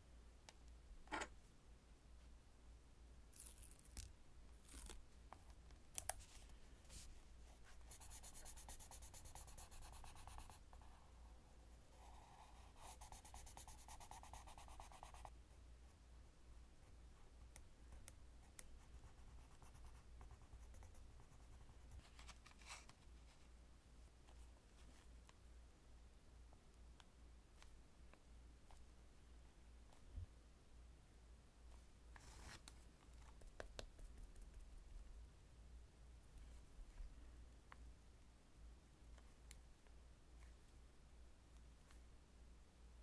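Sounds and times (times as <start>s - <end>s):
pencil scratching on paper: 7.6s - 10.8s, 12.0s - 15.3s.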